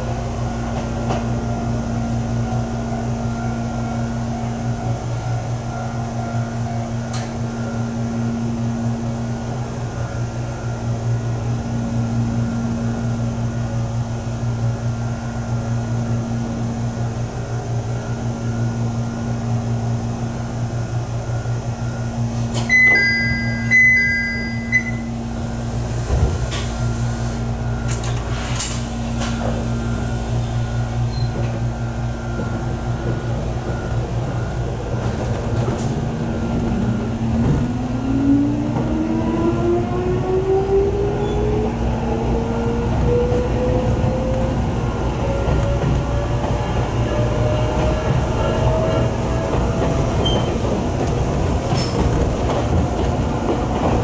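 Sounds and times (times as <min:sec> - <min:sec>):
train cabin hum and rumble: 0:00.0 - 0:54.0
high ringing tone: 0:21.2 - 0:25.3.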